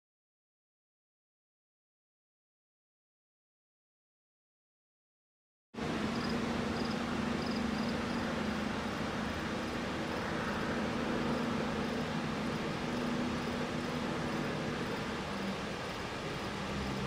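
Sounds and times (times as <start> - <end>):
low steady hum: 5.8 - 17.0.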